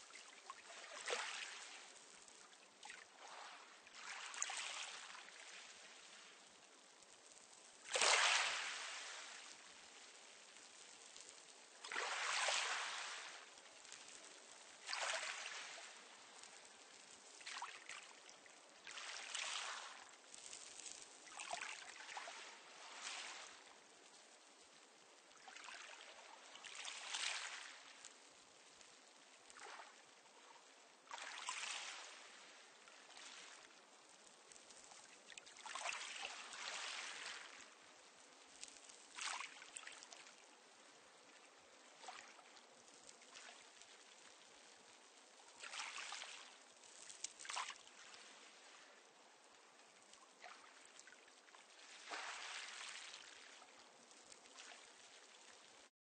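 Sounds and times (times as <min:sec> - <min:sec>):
waves on a pebble beach: 0:07.9 - 0:09.7, 0:11.2 - 0:14.0.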